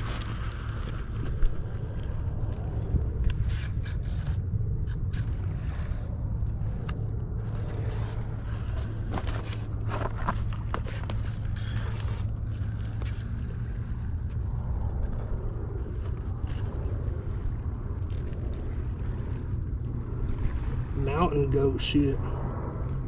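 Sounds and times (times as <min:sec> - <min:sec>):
steady low hum: 0:00.0 - 0:23.0
toy car scraping over rocks: 0:03.4 - 0:06.0, 0:07.5 - 0:13.5.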